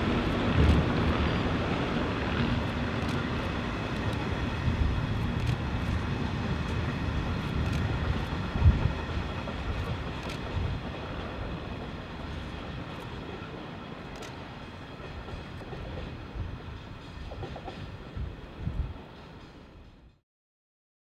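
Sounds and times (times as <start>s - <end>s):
train wheels rumbling on track: 0.0s - 20.2s.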